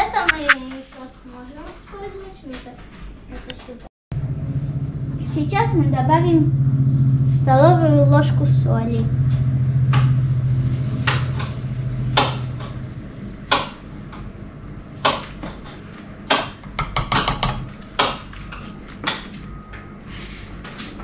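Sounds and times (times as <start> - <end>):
low hum: 4.1 - 15.0.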